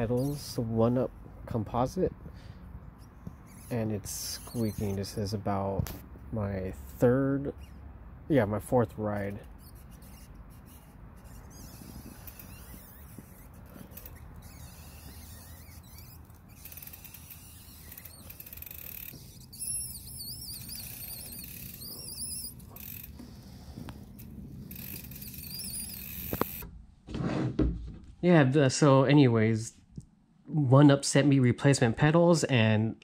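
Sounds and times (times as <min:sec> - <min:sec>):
pedal squeaking: 0:00.0 - 0:00.7, 0:02.9 - 0:05.4, 0:07.5 - 0:07.9, 0:09.2 - 0:26.7.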